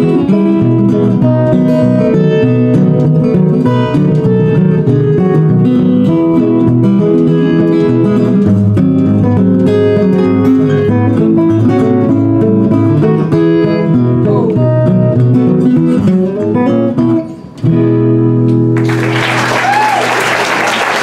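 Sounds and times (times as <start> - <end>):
fingerpicked guitar duet: 0.0 - 20.4
audience applause: 18.8 - 21.0.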